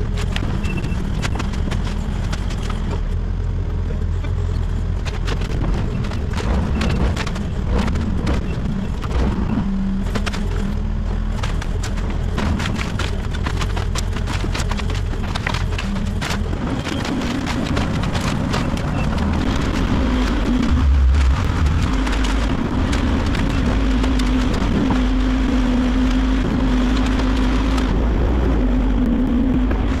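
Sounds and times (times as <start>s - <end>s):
excavator diesel engine rumbling: 0.0s - 30.0s
wood debris cracking: 5.1s - 27.9s.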